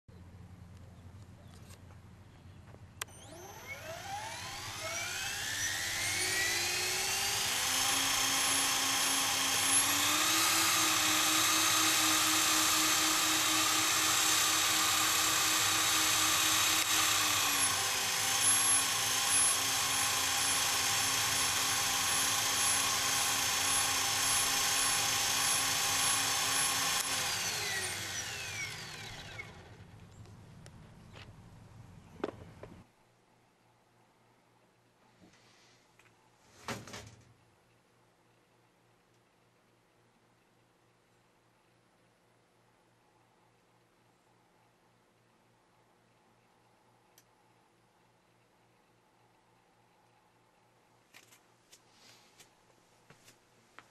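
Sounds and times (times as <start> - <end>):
electric motor whine: 3.0 - 30.0.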